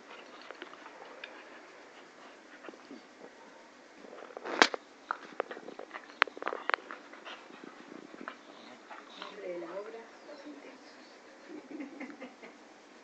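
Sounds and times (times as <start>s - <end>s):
puppies play-biting: 0.0s - 3.3s, 4.3s - 10.0s.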